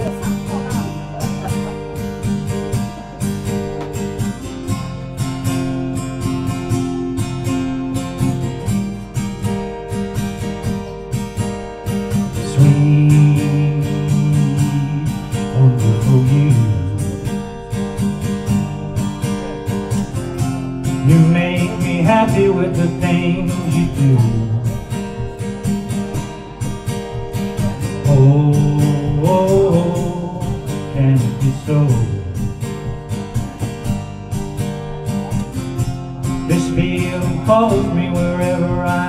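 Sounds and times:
acoustic guitar strumming: 0.0 - 39.0
man singing into a microphone: 12.0 - 18.0, 20.8 - 32.9, 35.1 - 39.0.

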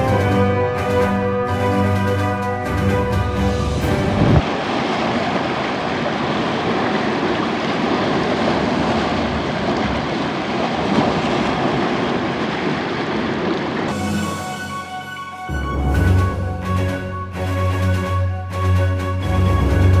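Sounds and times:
storm wind: 2.9 - 14.5
waves breaking against rocks: 3.9 - 14.0.

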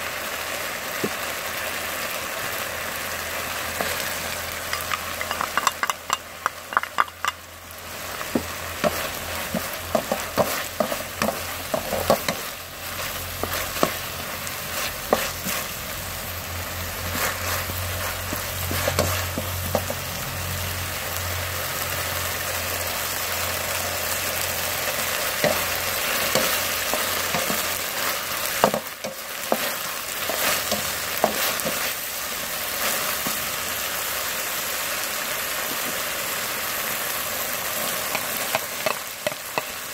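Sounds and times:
meat sizzling in a wok: 0.0 - 39.9
wooden spatula scraping: 8.4 - 15.9, 16.9 - 20.1, 25.4 - 32.0.

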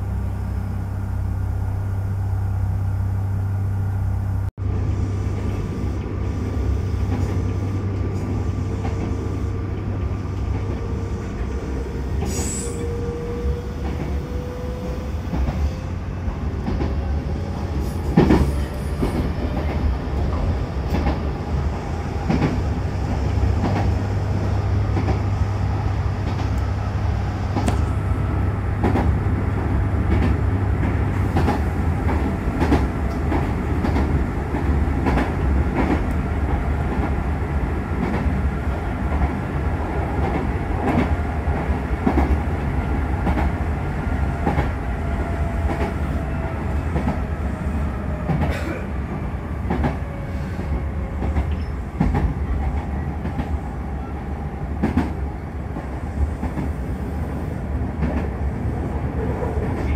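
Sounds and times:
faint rising tone: 0.0 - 4.5
train rumble: 0.0 - 59.9.

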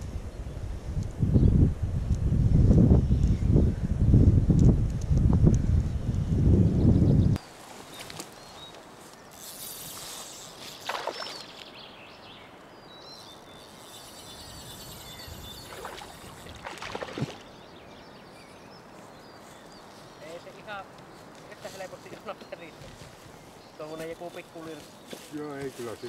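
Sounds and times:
small bird chirping: 6.1 - 21.6.

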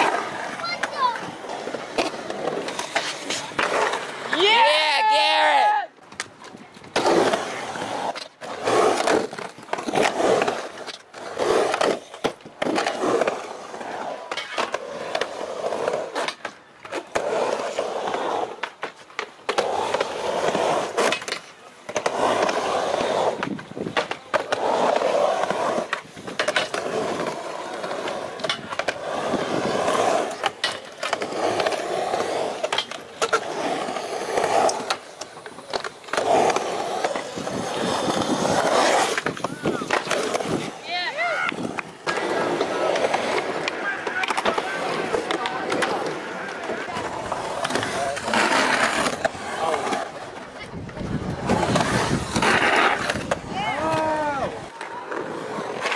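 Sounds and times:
skateboard clacking and slapping: 0.0 - 55.9
skateboard wheels rolling on concrete: 0.0 - 55.9.

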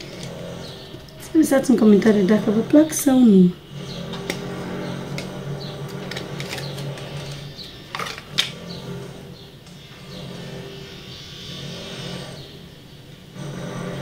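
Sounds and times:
earrings clicking: 5.1 - 8.6.

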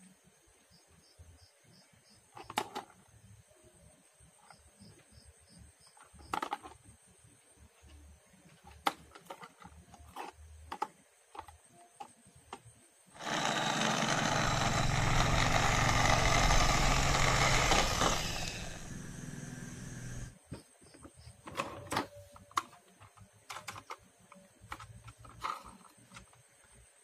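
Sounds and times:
plastic toy cars clicking: 2.3 - 3.1, 6.0 - 6.8, 8.5 - 13.4, 20.9 - 26.5
toy van motor whirring: 13.2 - 20.4.

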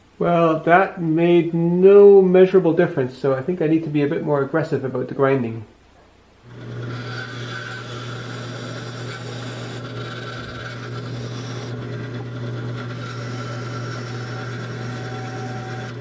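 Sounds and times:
bandsaw motor hum: 6.4 - 16.0
grinding stone scraping saw teeth: 6.5 - 16.0.

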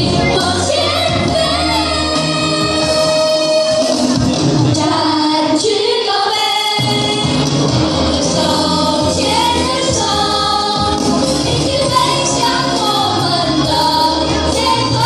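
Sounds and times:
children singing: 0.0 - 7.3, 8.1 - 15.0
musical accompaniment over loudspeakers: 0.0 - 15.0.

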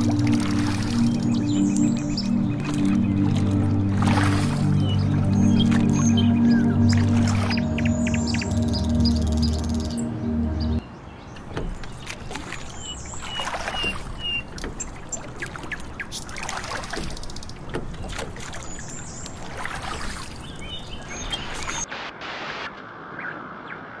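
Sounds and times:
oars splashing in water: 0.0 - 8.9, 11.3 - 21.9
bird chirps: 0.2 - 16.3.

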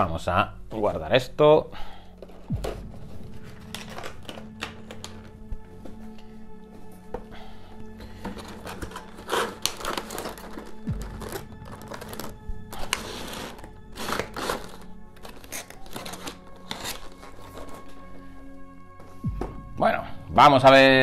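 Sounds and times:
background music: 0.0 - 21.0
game pieces rustling and clattering: 2.2 - 5.4, 8.1 - 18.0.

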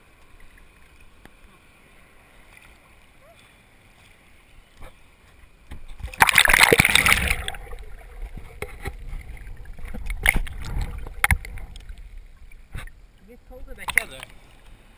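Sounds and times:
underwater water noise: 0.0 - 14.9
water splashing over camera: 5.7 - 13.0, 13.7 - 14.4.

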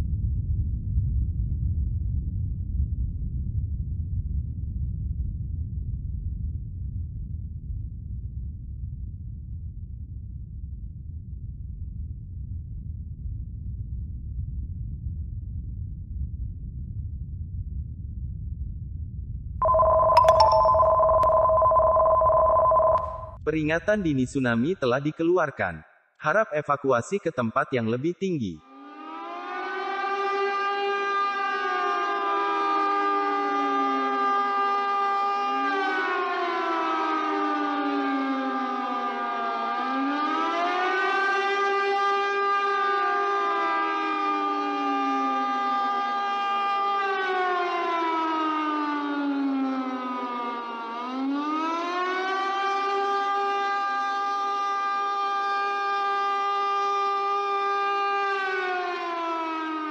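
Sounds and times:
two-tone alarm: 19.6 - 23.4
warning siren wailing: 19.6 - 23.4, 28.7 - 59.9.

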